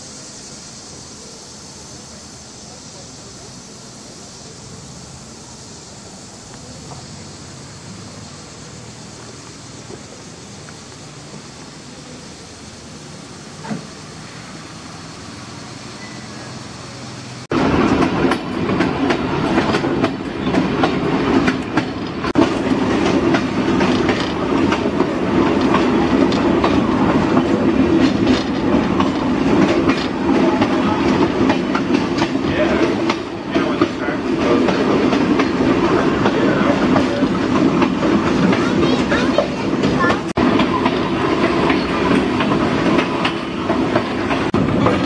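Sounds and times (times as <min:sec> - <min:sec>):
outdoor background noise: 0:00.0 - 0:45.0
railcar rattling: 0:00.0 - 0:45.0
train wheels clattering on rails: 0:06.3 - 0:11.6, 0:17.5 - 0:45.0.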